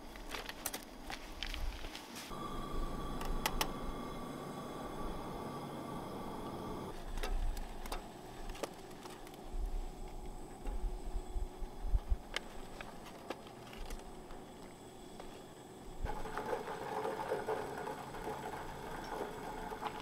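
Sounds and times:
camp stove rushing: 6.9 - 11.4, 12.2 - 20.0.

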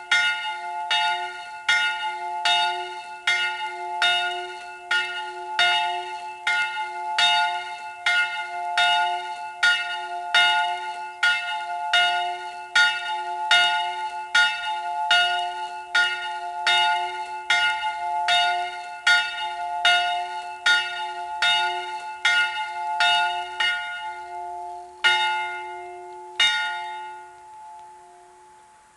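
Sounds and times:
church bell ringing: 0.0 - 28.8.

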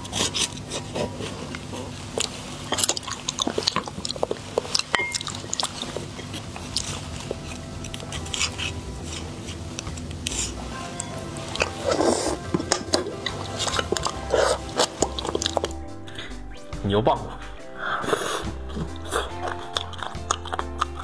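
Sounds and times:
biting and chewing: 0.0 - 15.8, 18.1 - 21.0
sharp clicks and smacks: 12.6 - 15.8, 18.9 - 21.0.

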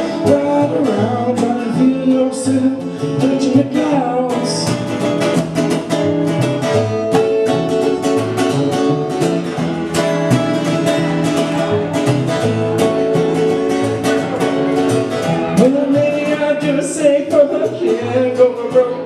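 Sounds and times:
acoustic guitar strumming: 0.0 - 19.0
double bass plucked: 0.0 - 19.0.

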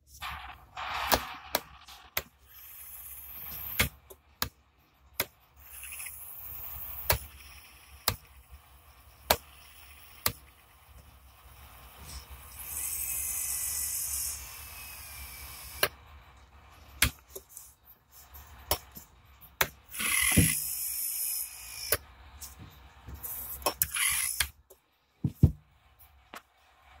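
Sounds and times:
dental handpiece motor whirring: 1.0 - 4.2, 5.2 - 16.1, 19.9 - 22.1, 23.5 - 24.6.

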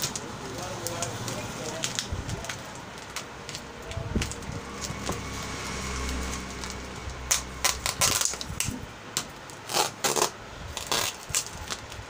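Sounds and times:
plastic pouch peeled off cardboard: 7.4 - 8.8, 9.5 - 12.0.

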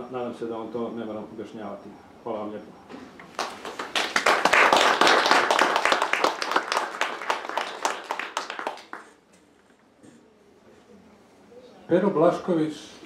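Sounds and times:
audience applauding: 3.3 - 9.2.

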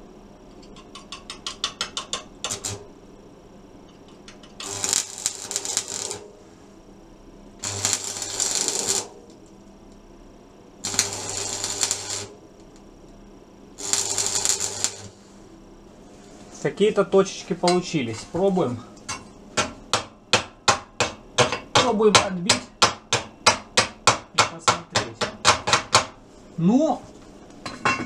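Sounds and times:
electric arc welding crackle: 2.1 - 2.9, 4.4 - 6.6, 7.6 - 10.0, 10.8 - 13.0, 13.7 - 15.5.

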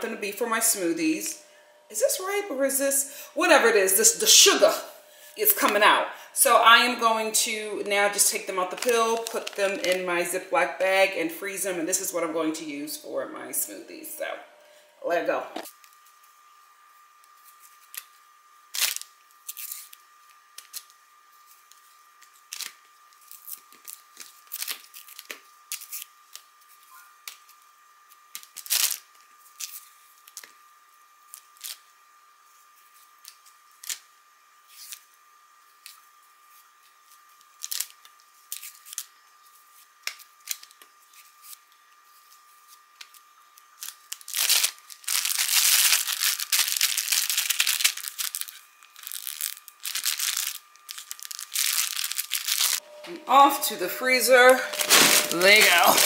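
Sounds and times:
plastic bag crinkling: 7.4 - 10.4, 18.7 - 20.0, 22.4 - 26.4, 28.4 - 30.5, 37.6 - 39.1, 43.7 - 52.9, 54.0 - 56.0
bananas being peeled: 7.8 - 10.2, 17.2 - 30.6, 31.2 - 53.5, 54.6 - 56.0.

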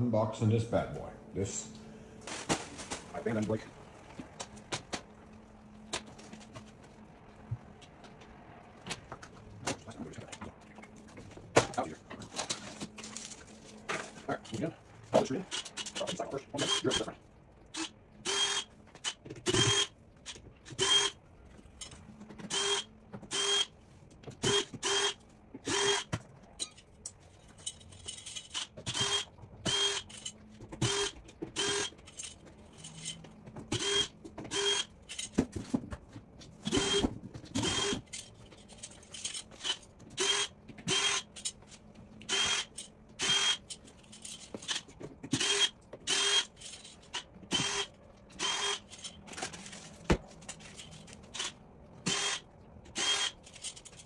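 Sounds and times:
power drill whining in bursts: 15.5 - 17.1, 17.7 - 18.7, 19.4 - 19.9, 20.7 - 21.2, 22.5 - 23.7, 24.4 - 26.1, 28.5 - 30.1, 30.8 - 32.0, 33.7 - 34.9, 36.6 - 38.0, 39.6 - 41.3, 42.3 - 43.6, 45.3 - 46.5, 47.5 - 48.8, 51.3 - 52.4, 53.0 - 53.4.

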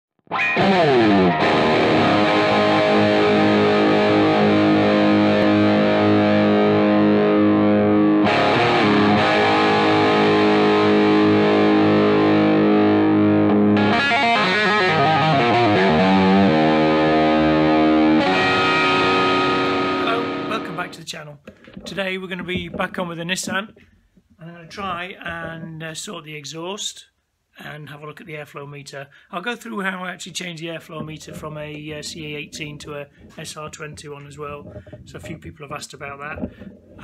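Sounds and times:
distorted electric guitar chords: 0.2 - 21.0.

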